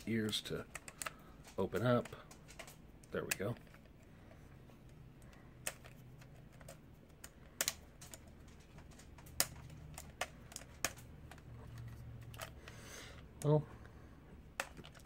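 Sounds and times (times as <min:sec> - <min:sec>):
plastic toy parts clicking: 0:05.2 - 0:12.6.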